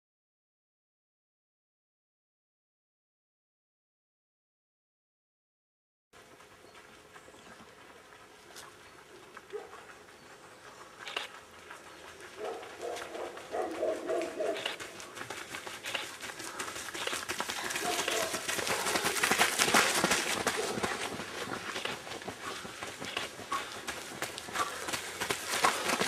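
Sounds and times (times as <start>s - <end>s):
footsteps on gravel: 6.2s - 26.0s.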